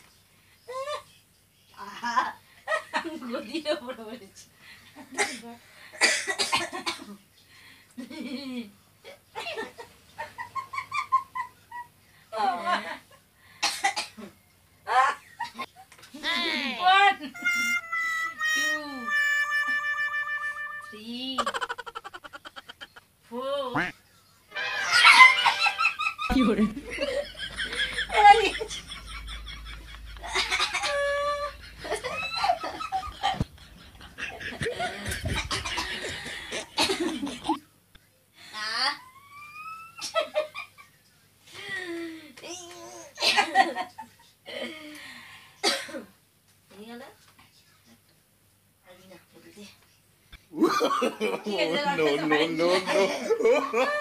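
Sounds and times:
women laughing and giggling: 0:09.4 - 0:13.0, 0:21.3 - 0:23.0, 0:24.8 - 0:37.6, 0:50.6 - 0:54.0.

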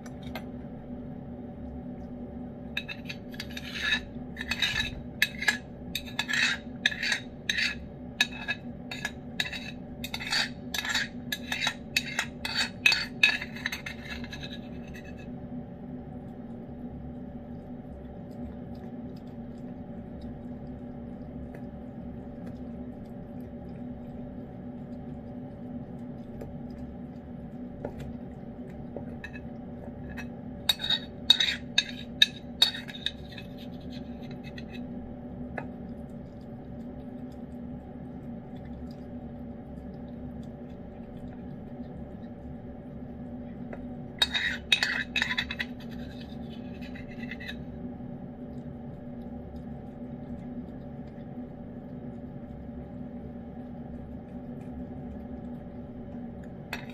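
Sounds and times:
steady low hum: 0:00.0 - 0:56.9
metal spoon scraping ceramic dish: 0:02.8 - 0:15.3, 0:30.1 - 0:34.8, 0:44.2 - 0:47.6.

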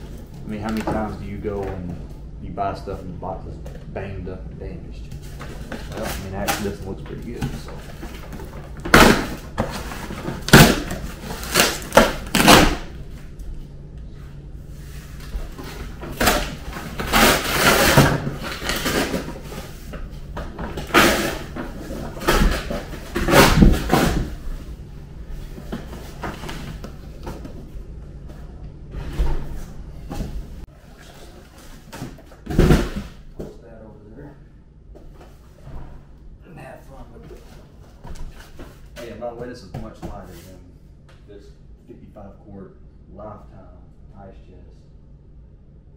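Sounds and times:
cardboard box ripping: 0:10.4 - 0:12.8.

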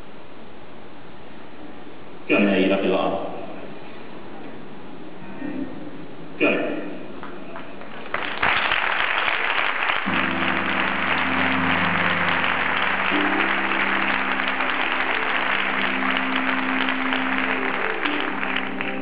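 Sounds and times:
audience applauding: 0:07.2 - 0:19.0
music with held chords: 0:10.1 - 0:19.0.

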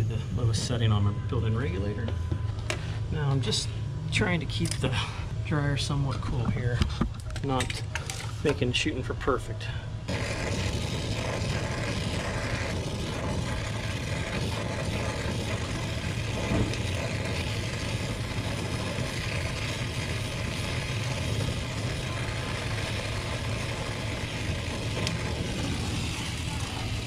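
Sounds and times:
torch flame rushing: 0:10.0 - 0:27.0.

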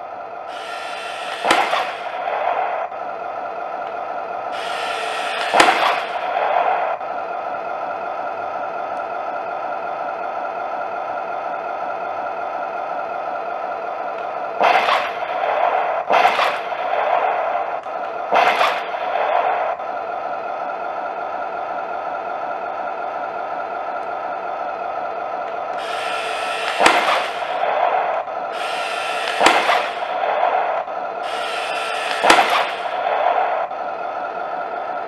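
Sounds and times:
sharp gun crack: 0:00.5 - 0:07.5, 0:14.2 - 0:20.1, 0:25.5 - 0:34.3
gun firing effects: 0:00.5 - 0:08.7, 0:13.7 - 0:21.3, 0:25.5 - 0:35.0
engine idle hum from speaker: 0:19.6 - 0:35.0.

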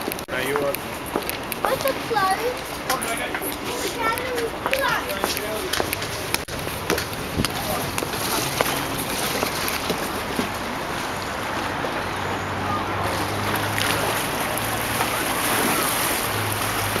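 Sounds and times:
rushing water: 0:00.0 - 0:17.0
wind on microphone: 0:06.0 - 0:10.9.

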